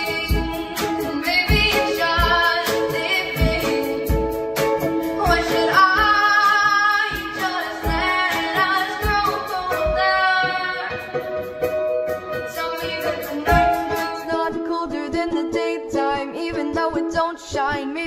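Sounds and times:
woman singing: 0.0 - 4.4, 5.2 - 11.2, 12.4 - 18.0
acoustic guitar: 0.0 - 18.0
low thumps on the beat: 7.1 - 12.7, 13.5 - 14.3.

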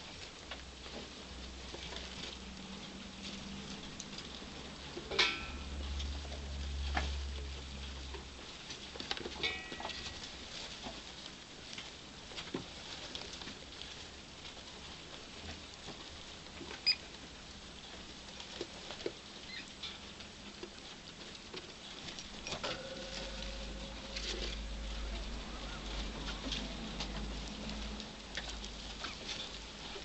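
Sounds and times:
rats feeding and rustling: 0.0 - 30.0
steady low hum: 22.3 - 30.0.

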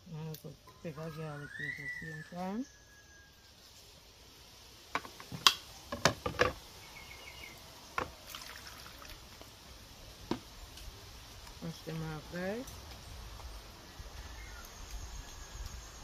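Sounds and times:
water splashing onto a plate: 8.0 - 9.5.

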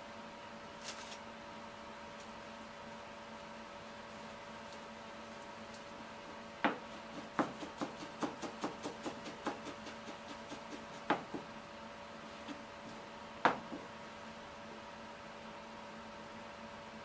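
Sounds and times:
steady hum: 0.0 - 17.0.

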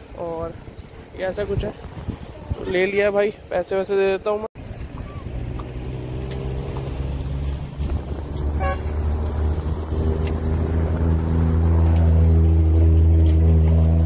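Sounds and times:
car horn toot: 8.6 - 9.0.

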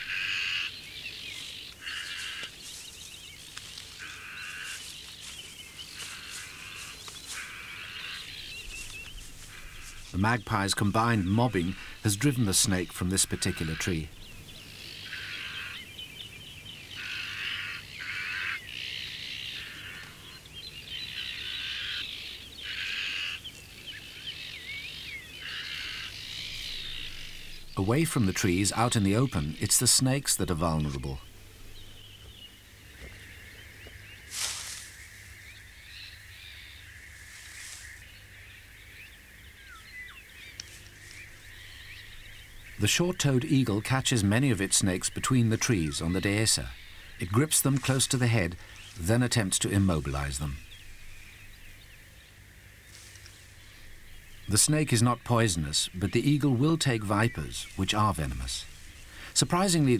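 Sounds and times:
magpies harsh rasping calls: 0.0 - 35.1, 39.5 - 59.9
small birds chirping: 0.0 - 59.9
soft rustle: 1.3 - 10.2, 31.0 - 35.8, 37.0 - 38.3, 40.5 - 42.8, 52.8 - 54.4, 57.6 - 59.4.

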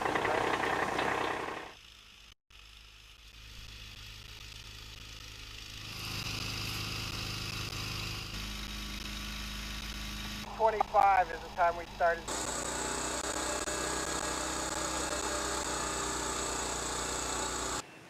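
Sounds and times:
tracked vehicle engine humming: 0.0 - 1.8, 3.2 - 17.8
high whine: 3.1 - 17.8.

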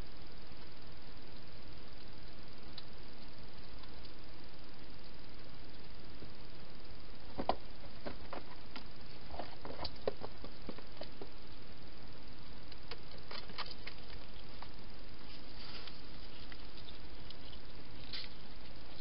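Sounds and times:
steady hiss: 0.0 - 19.0
hedgehog eating clicks and crunches: 12.6 - 19.0.

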